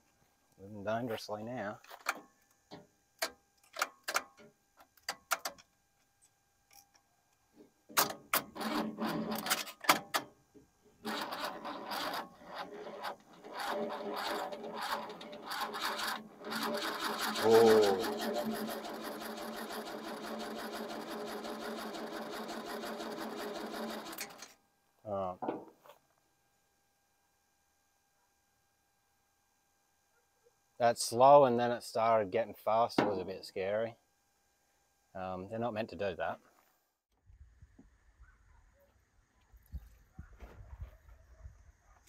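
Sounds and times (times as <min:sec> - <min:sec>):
starter motor cranking engine: 0:08.4 - 0:09.6, 0:11.0 - 0:24.5
loud voice-like cry: 0:17.3 - 0:18.3.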